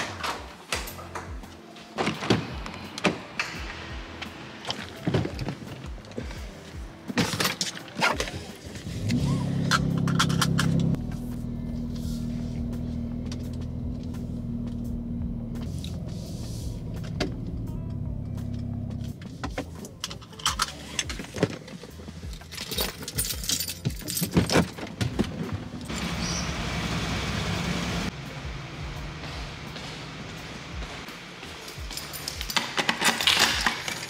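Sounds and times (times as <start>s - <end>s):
keys jangling: 22.2s - 24.9s, 31.6s - 34.0s.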